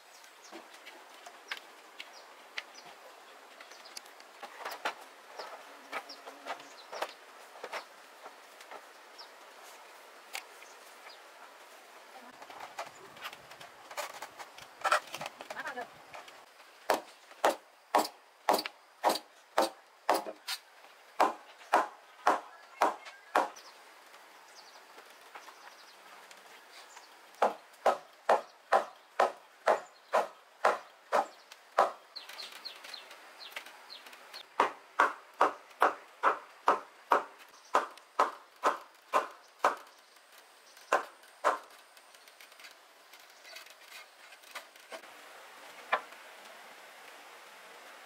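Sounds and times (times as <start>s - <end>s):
tool chopping wood: 16.9s - 20.4s, 21.2s - 23.6s, 27.4s - 32.0s, 34.6s - 39.9s, 40.9s - 41.7s.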